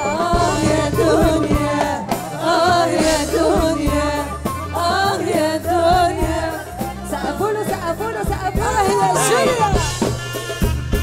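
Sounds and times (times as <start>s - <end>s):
woman singing: 0.0s - 10.1s
drums: 0.0s - 11.0s
jingling frame drum: 0.0s - 11.0s
live band playing: 0.0s - 11.0s.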